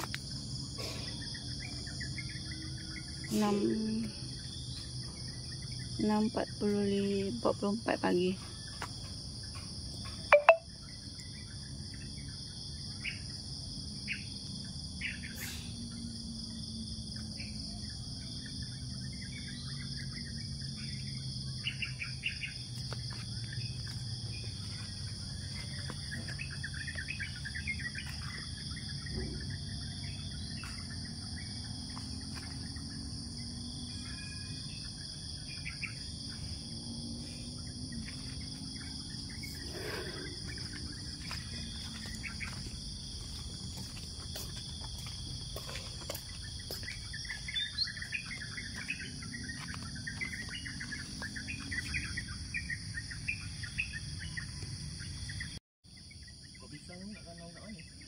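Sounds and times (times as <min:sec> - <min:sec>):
high-pitched insect chorus: 0:00.0 - 0:58.0
bird chirps: 0:09.5 - 0:12.3, 0:23.4 - 0:32.8, 0:46.3 - 0:54.6.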